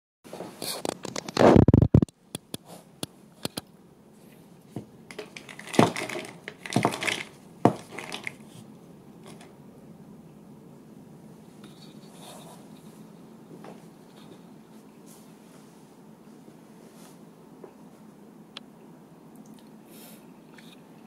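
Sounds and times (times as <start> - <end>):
metal can crackling rustle: 5.1 - 8.4.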